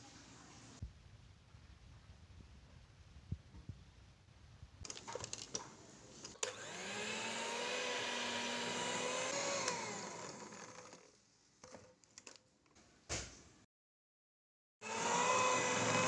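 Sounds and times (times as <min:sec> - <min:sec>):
electric mixer whining: 0:06.4 - 0:11.1, 0:14.8 - 0:16.0.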